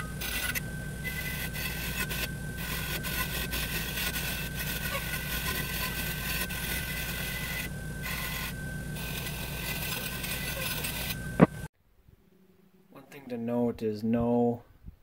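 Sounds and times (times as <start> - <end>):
grinder motor humming: 0.0 - 11.7
wire wheel brushing metal: 0.0 - 11.7.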